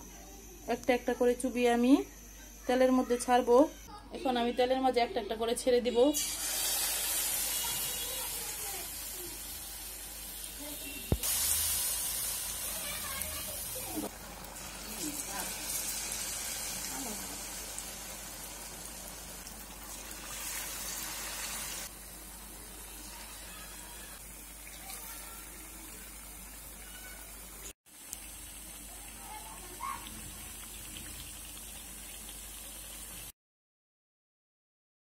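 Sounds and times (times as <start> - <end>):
food sizzling in deep oil: 6.1 - 33.3.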